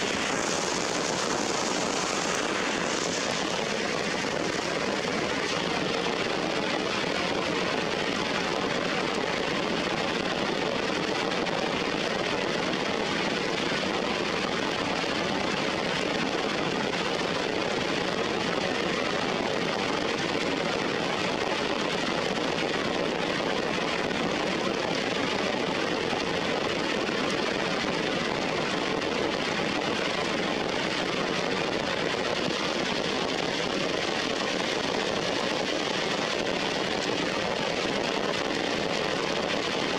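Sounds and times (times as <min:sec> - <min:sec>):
heavy rain on rocks and leaves: 0:00.0 - 0:39.9.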